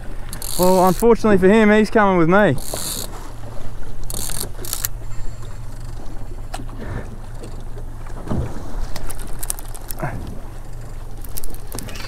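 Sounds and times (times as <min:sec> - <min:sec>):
outboard motor idling: 0:00.0 - 0:12.0
sharp clicks: 0:04.0 - 0:05.0, 0:11.2 - 0:12.0.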